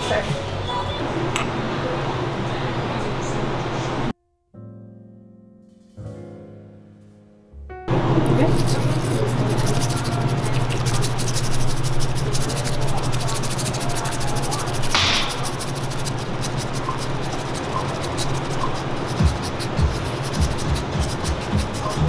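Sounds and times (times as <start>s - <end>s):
whisk swishing in a ceramic bowl: 8.4s - 22.0s.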